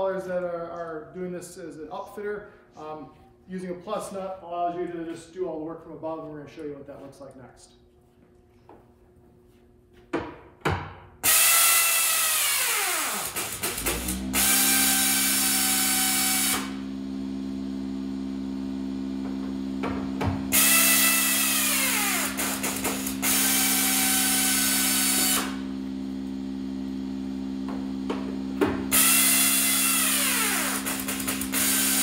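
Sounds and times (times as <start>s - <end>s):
steady low hum: 0.0s - 11.3s
power drill whining: 11.2s - 16.8s, 20.5s - 25.7s, 28.9s - 32.0s.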